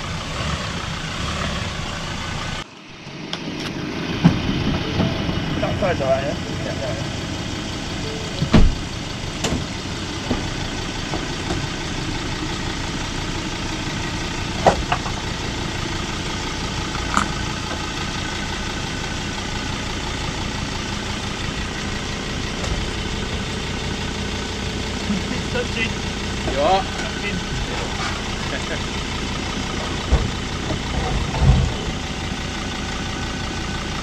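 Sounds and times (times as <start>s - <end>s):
diesel engine running: 0.0s - 34.0s
heavy thump: 8.4s - 9.7s, 30.1s - 31.9s.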